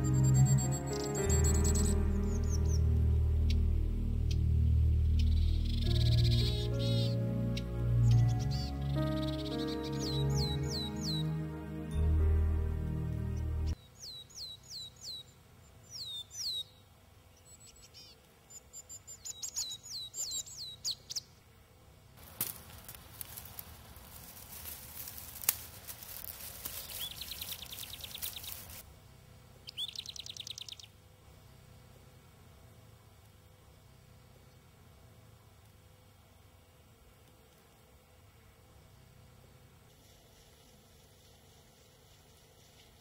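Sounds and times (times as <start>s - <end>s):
bird trill: 0.0s - 12.3s, 29.7s - 30.9s
background music: 0.0s - 13.8s
songbirds chirping: 0.0s - 21.5s, 22.2s - 32.2s
hand rustling dry grass: 22.2s - 28.8s.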